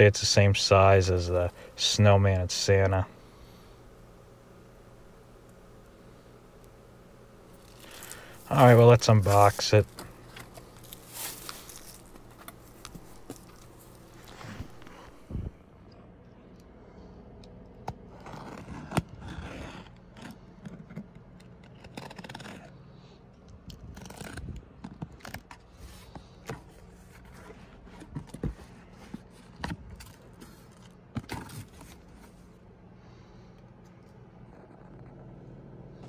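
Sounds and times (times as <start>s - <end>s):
tape and cardboard tearing: 7.5s - 15.0s, 18.0s - 22.8s, 23.7s - 25.8s
box cutter slitting packing tape: 21.6s - 22.7s.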